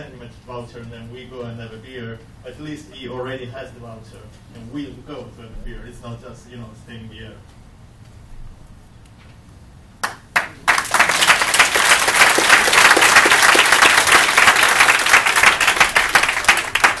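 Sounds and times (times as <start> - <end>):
audience clapping: 10.0 - 17.0.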